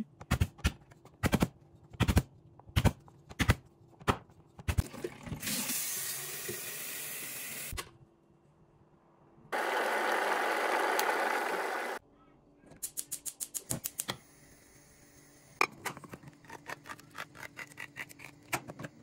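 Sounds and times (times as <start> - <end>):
tap water filling kettle: 4.8 - 7.0.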